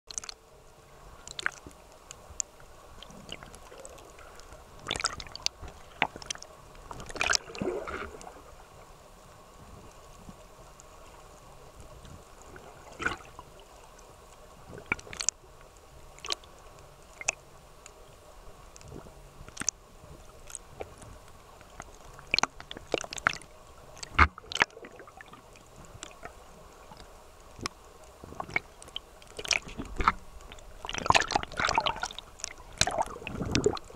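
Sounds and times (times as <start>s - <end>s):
muffled underwater water sound: 0.1s - 33.9s
sharp clicks and pops: 19.5s - 19.8s.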